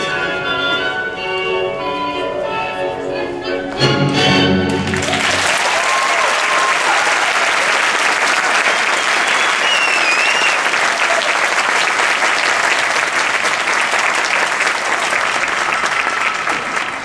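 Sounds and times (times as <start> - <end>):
audience applauding: 4.7 - 17.0.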